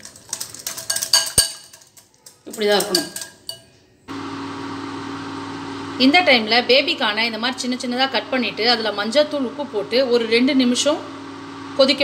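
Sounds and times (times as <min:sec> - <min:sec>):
whisk clinking against glass bowl: 0:00.0 - 0:03.7.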